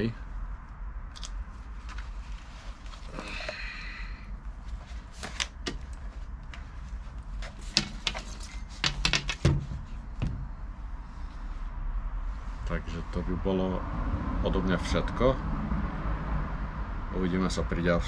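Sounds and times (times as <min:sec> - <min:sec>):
plastic helmet clicks and knocks: 0:07.5 - 0:10.4.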